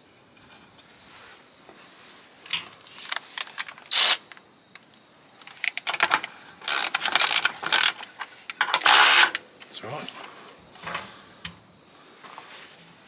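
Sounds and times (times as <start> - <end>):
clicks and small rattles: 2.5 - 8.9
cordless ratchet motor bursts: 3.9 - 4.2, 6.6 - 8.0, 8.8 - 9.4.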